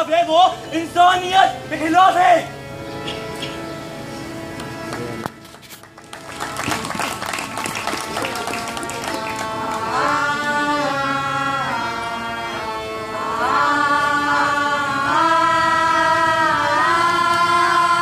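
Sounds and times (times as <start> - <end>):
voices singing long held notes: 6.4 - 18.0.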